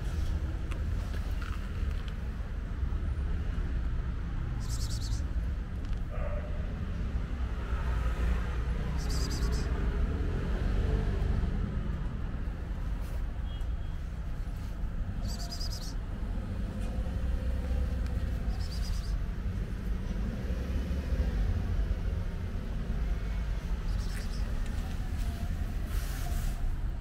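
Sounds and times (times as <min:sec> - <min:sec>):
low street rumble: 0:00.0 - 0:27.0
high bird chirps: 0:04.6 - 0:05.3, 0:09.0 - 0:09.7, 0:15.2 - 0:16.0, 0:18.4 - 0:19.2.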